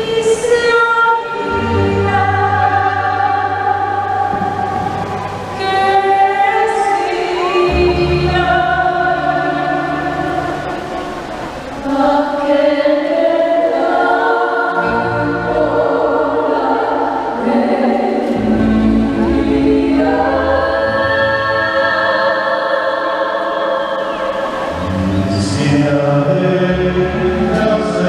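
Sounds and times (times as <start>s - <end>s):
choir singing chords: 0.0s - 28.0s
low sustained bass notes: 1.2s - 12.7s, 14.8s - 22.1s, 24.0s - 28.0s.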